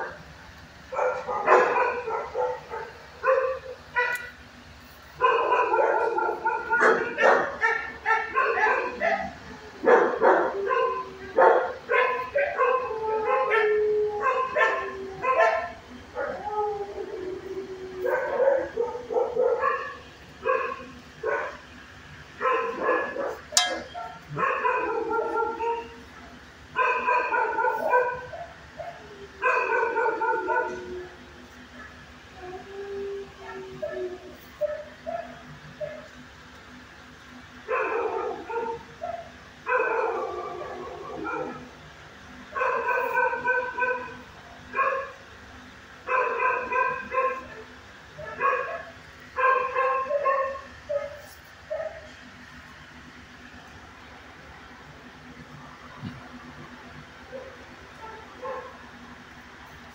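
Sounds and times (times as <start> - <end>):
dog barking and yipping: 0.9 - 4.4, 5.2 - 16.8, 18.0 - 21.7, 22.4 - 31.0, 33.4 - 36.2, 37.6 - 41.7, 42.6 - 45.2, 46.0 - 52.2, 57.3 - 58.8.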